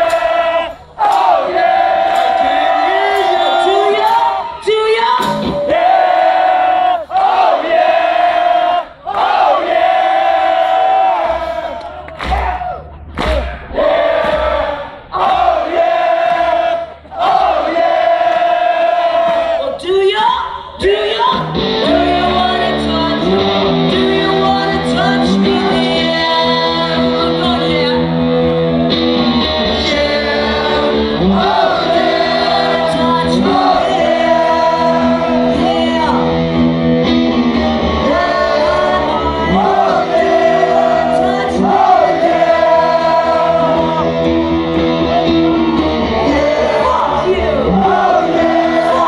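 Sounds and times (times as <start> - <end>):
woman singing: 19.8 - 28.2, 29.7 - 36.3, 38.0 - 44.1
strummed electric guitar: 21.3 - 49.0.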